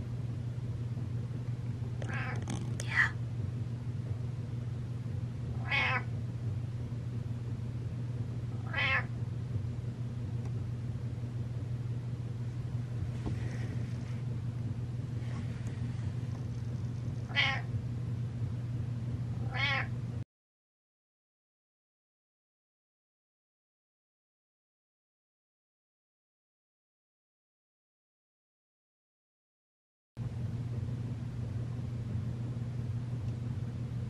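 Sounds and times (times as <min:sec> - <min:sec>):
steady low hum: 0:00.0 - 0:20.2, 0:30.2 - 0:34.0
cat meowing: 0:02.1 - 0:02.6, 0:05.6 - 0:06.1, 0:08.6 - 0:09.1, 0:17.3 - 0:17.7, 0:19.4 - 0:19.9.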